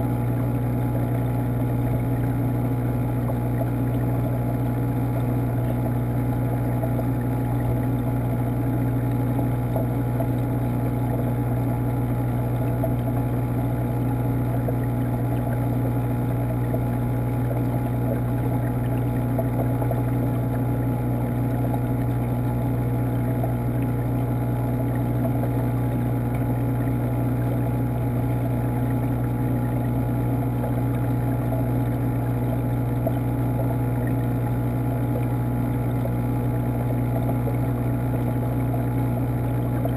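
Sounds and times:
water pump humming: 0.0s - 39.9s.

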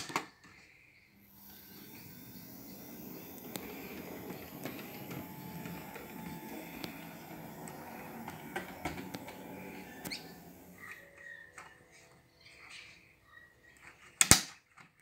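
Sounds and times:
model train motor whirr: 1.2s - 12.3s
wheels clicking over rail joints: 1.4s - 11.0s.

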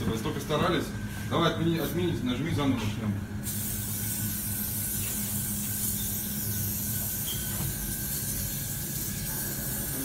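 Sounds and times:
steady low hum: 0.0s - 10.0s
spray paint can hissing: 3.4s - 10.0s.

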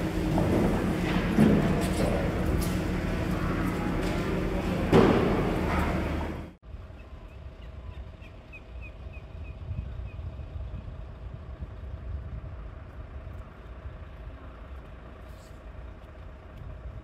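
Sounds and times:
low engine rumble: 0.0s - 17.0s
steady hum: 0.0s - 17.0s.

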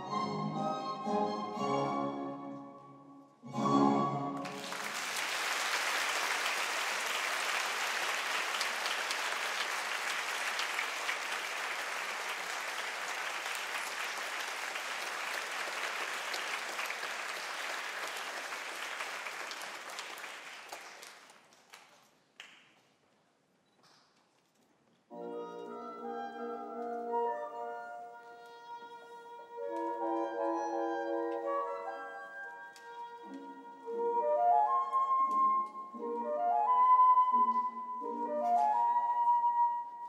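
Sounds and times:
orchestral music: 0.0s - 5.1s, 25.1s - 40.0s
audience applause: 4.4s - 22.5s.

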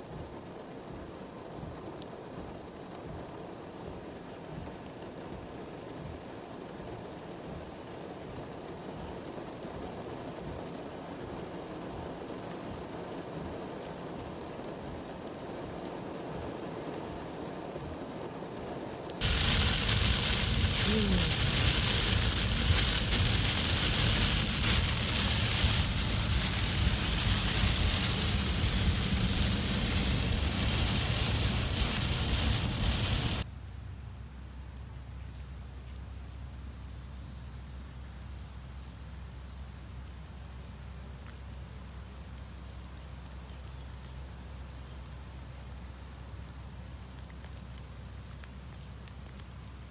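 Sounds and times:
heavy rain pelting a car: 0.0s - 33.5s
steady rain: 0.0s - 49.9s
traffic on flooded road: 19.2s - 33.5s.

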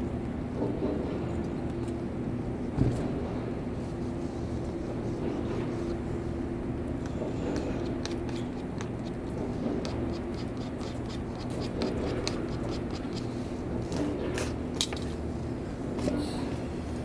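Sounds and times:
metal scraper scratching paint: 9.8s - 13.3s.

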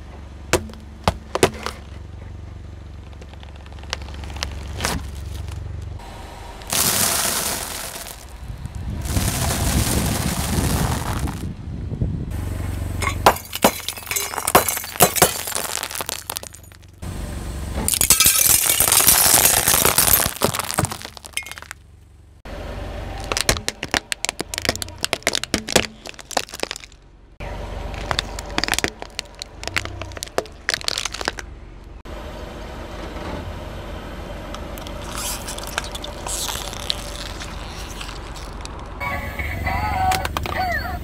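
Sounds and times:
plastic toys cracking and crunching: 3.0s - 5.6s, 6.7s - 8.4s, 13.7s - 16.8s, 17.9s - 21.8s, 23.2s - 27.0s, 27.9s - 31.5s, 34.8s - 39.0s
glass tubes shattering: 6.7s - 8.4s, 13.0s - 17.0s, 17.9s - 21.8s, 23.2s - 27.0s, 28.0s - 31.4s, 34.8s - 38.8s
tyre squashing slime: 23.2s - 27.0s, 34.8s - 38.8s.

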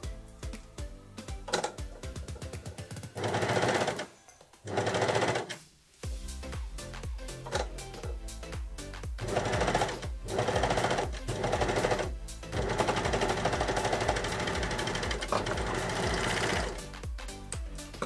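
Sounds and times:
background music with steady beat: 0.0s - 18.0s
overlocker stitching: 1.5s - 5.7s, 7.4s - 8.2s, 9.2s - 16.8s.

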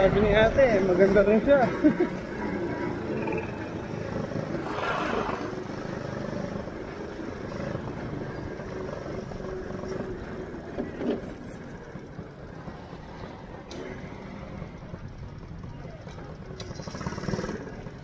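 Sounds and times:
go-kart engine running: 0.0s - 18.0s
rush of noise: 4.4s - 6.0s.

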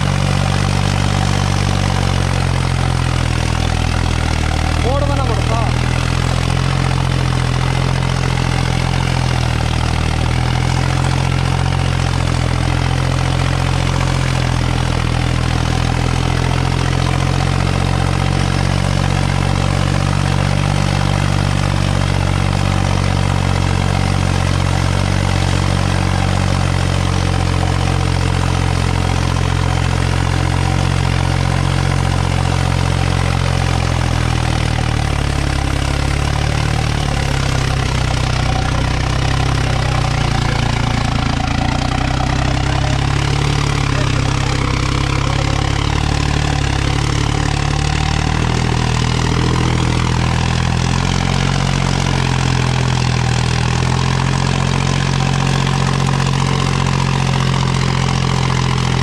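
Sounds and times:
tractor diesel engine running: 0.0s - 59.0s.

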